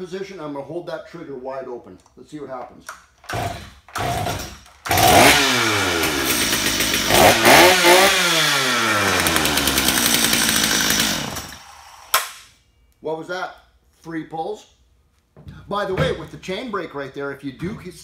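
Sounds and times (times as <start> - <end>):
chainsaw running at high revs: 3.3 - 12.1
chainsaw engine winding down: 3.3 - 12.2.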